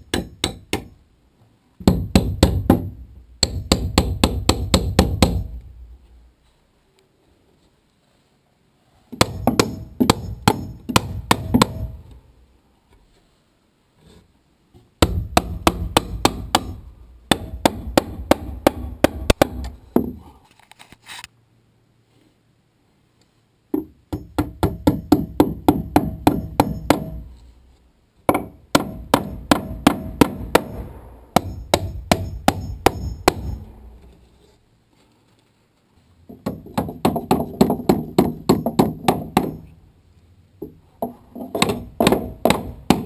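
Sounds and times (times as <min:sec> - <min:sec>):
hammer driving nails: 0:00.0 - 0:01.0, 0:01.8 - 0:05.6, 0:09.1 - 0:12.1, 0:15.0 - 0:20.2, 0:23.8 - 0:27.3, 0:28.3 - 0:33.7, 0:36.3 - 0:39.7, 0:41.0 - 0:43.0.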